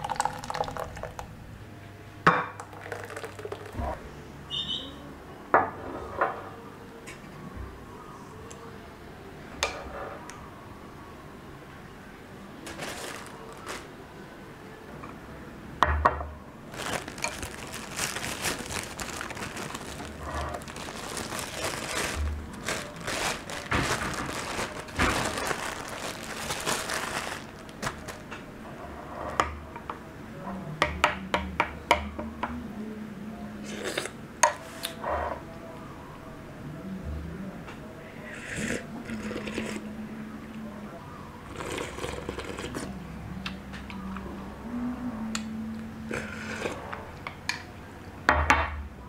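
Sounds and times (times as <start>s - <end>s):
plastic bag crinkling: 12.6s - 13.9s, 16.7s - 28.3s.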